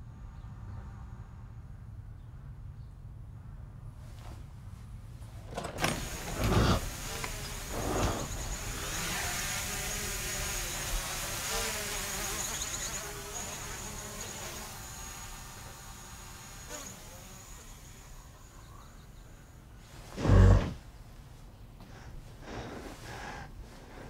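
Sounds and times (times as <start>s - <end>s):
drone rotors buzzing: 5.5s - 20.4s.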